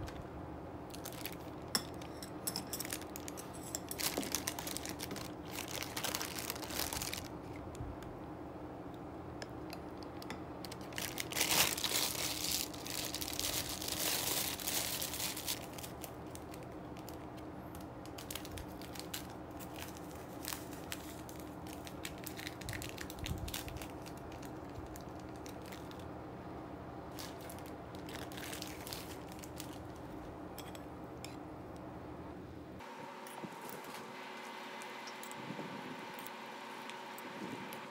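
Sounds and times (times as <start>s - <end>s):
plastic packaging crinkling: 0.9s - 2.2s, 2.8s - 7.6s, 10.6s - 26.1s, 27.1s - 30.1s.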